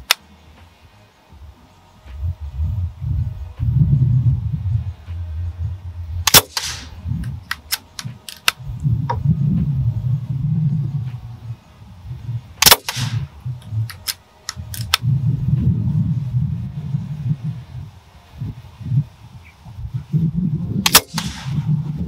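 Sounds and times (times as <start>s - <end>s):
wind rumble on microphone: 0.0s - 22.0s
air rifle shot crack: 6.2s - 8.6s, 12.6s - 15.0s, 20.8s - 21.7s.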